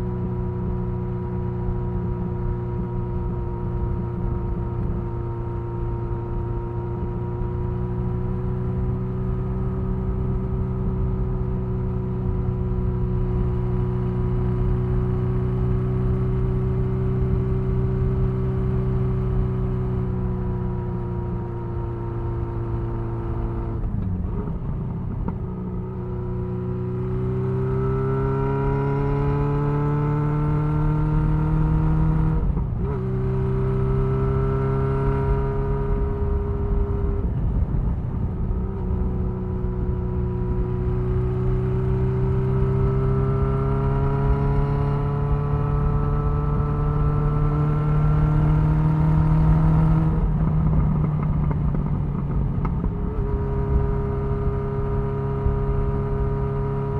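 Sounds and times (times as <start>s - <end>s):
motorcycle engine running: 0.0s - 56.9s
wind rushing over microphone: 23.4s - 56.9s.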